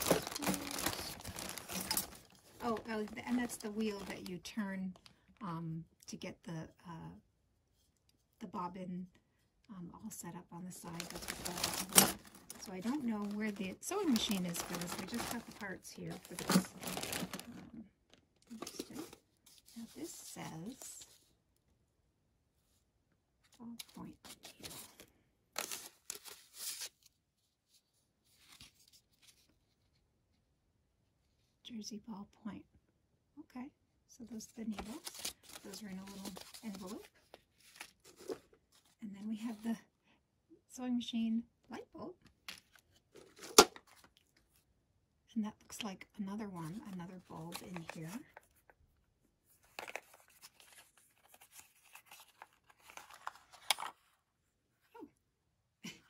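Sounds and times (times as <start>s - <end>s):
paper envelope rustling: 0.0s - 4.3s, 10.8s - 17.6s, 23.8s - 27.1s, 34.7s - 39.0s, 49.6s - 54.1s.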